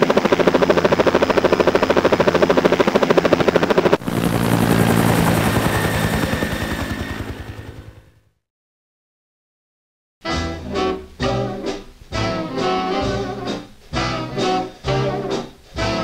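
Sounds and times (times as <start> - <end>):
model aircraft motor and propeller: 0.0 - 7.9.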